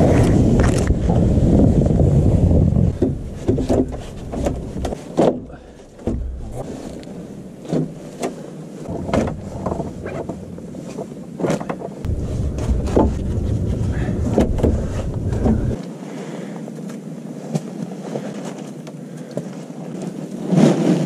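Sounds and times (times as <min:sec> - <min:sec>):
low rumble: 0:00.0 - 0:08.2, 0:08.8 - 0:11.4, 0:12.0 - 0:15.8
irregular knocks and clicks: 0:02.6 - 0:15.8.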